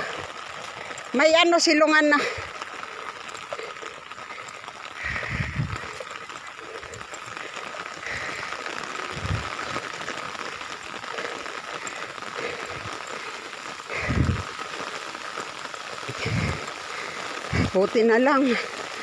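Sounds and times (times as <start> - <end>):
heavy rain: 0.0 - 19.0
dull low thumps: 5.0 - 5.8, 14.0 - 14.5.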